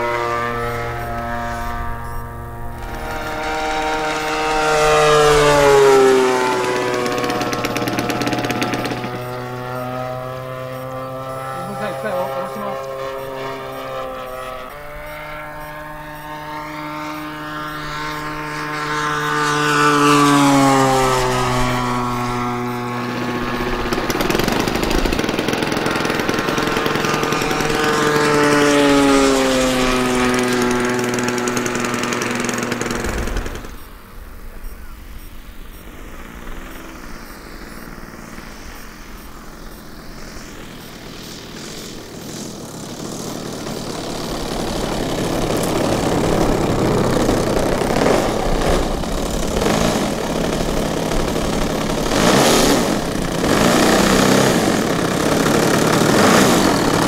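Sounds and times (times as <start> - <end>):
model airplane propeller engine: 0.0 - 57.0.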